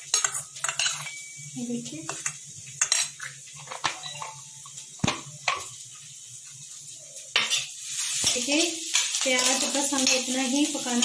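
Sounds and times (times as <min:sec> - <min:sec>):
spoon clinking against steel bowl: 0:00.0 - 0:04.4.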